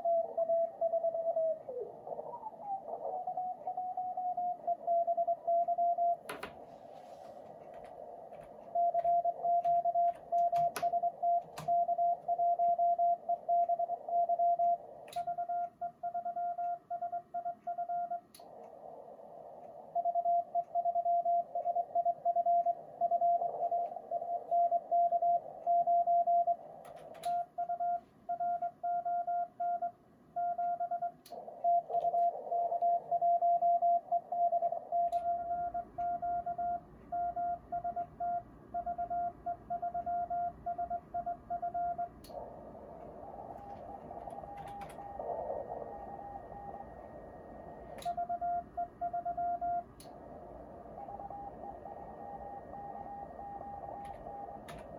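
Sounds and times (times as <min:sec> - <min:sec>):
fainter higher-pitched morse signal: 0:00.0 - 0:06.3, 0:06.9 - 0:54.9
morse code tone: 0:00.0 - 0:06.3, 0:06.9 - 0:54.9
receiver hiss: 0:00.0 - 0:28.3, 0:38.4 - 0:54.9
sharp clicks: 0:07.5 - 0:25.8, 0:26.7 - 0:27.5, 0:42.0 - 0:45.4, 0:47.9 - 0:48.4.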